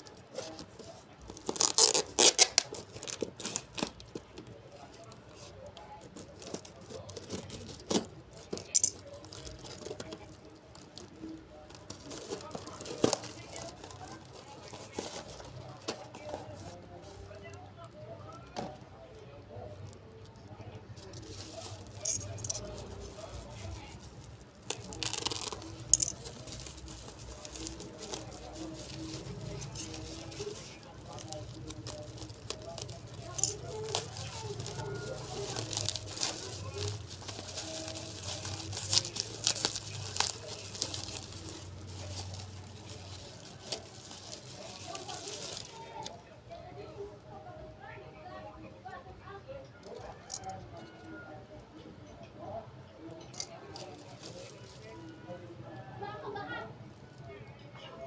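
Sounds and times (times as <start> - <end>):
packing tape ripping: 1.3 - 4.0, 24.6 - 45.7
paper rustling: 6.1 - 17.2, 21.0 - 46.1.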